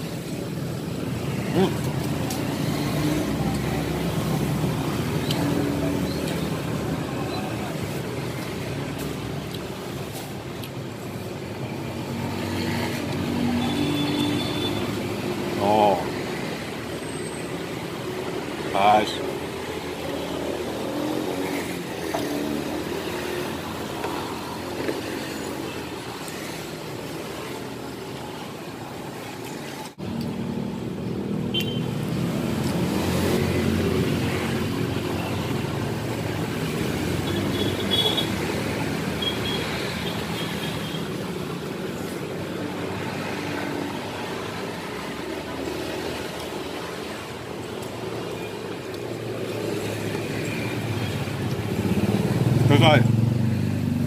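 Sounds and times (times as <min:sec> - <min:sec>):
road traffic: 0:00.0 - 0:54.0.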